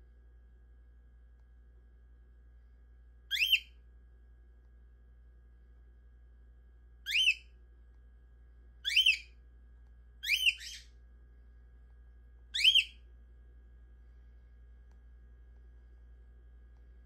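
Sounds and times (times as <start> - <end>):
cockatiel whistled chirps: 3.3 - 3.8, 7.1 - 7.5, 8.8 - 9.4, 10.2 - 10.9, 12.5 - 13.0.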